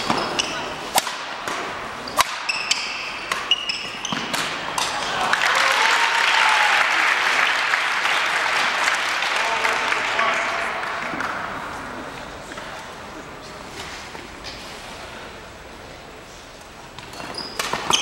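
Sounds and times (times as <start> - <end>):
shoes squeaking on court: 0.0 - 0.9, 2.0 - 4.8, 16.9 - 18.0
racket striking shuttlecock: 0.0 - 5.0
crowd applauding and cheering: 5.1 - 11.3.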